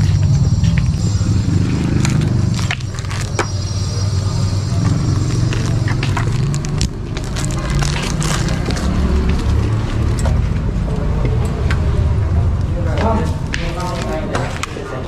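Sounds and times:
footsteps: 0.0s - 3.6s, 4.7s - 11.4s
plastic sleeve rustling: 2.0s - 3.5s, 5.5s - 9.5s.

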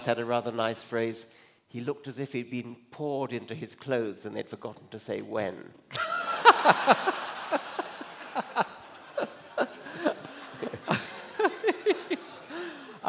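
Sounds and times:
audience laughing: 6.0s - 13.0s.

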